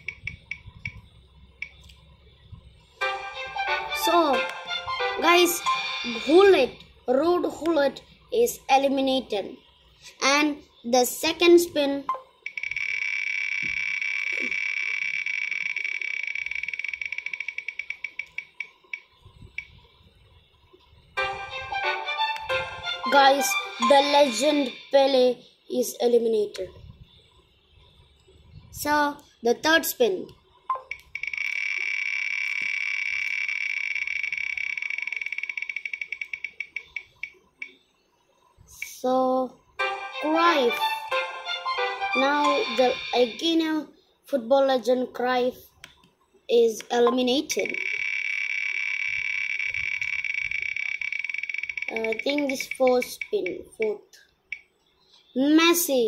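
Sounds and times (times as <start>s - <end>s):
spinning wheel ticking: 0.0s - 1.0s, 12.4s - 19.7s, 30.7s - 37.8s, 47.6s - 53.6s.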